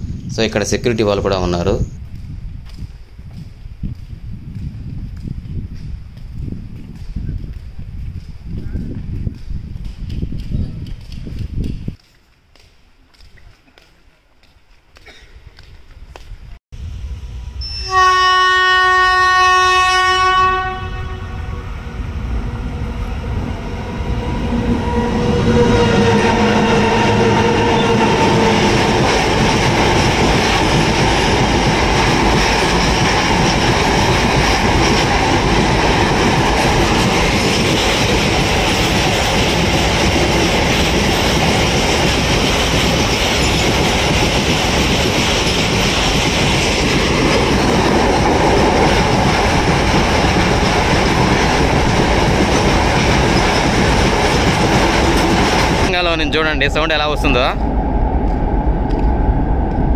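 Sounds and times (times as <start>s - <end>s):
locomotive passing: 16.8s - 59.9s
locomotive horn blast: 17.0s - 28.8s
wagon wheels rolling on rail: 27.2s - 55.9s.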